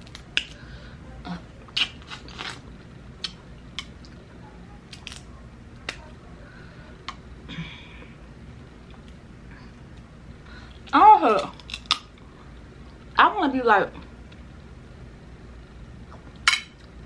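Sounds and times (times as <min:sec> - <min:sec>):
crab shell cracking: 0:04.9 - 0:05.3, 0:11.3 - 0:12.2.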